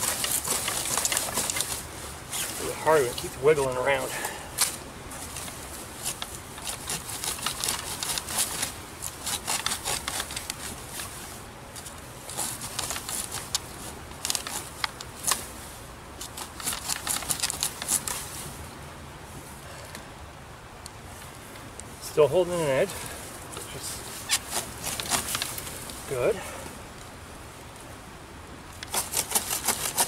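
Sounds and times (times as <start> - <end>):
saw blade cutting wet branch: 6.0 - 10.7, 24.3 - 25.8, 28.8 - 30.0.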